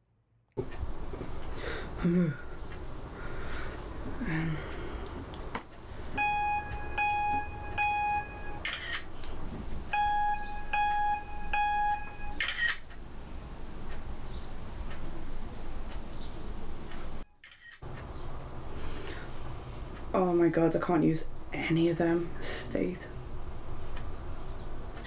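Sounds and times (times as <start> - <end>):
short electronic beeps: 6.2 - 9.0, 9.9 - 12.7.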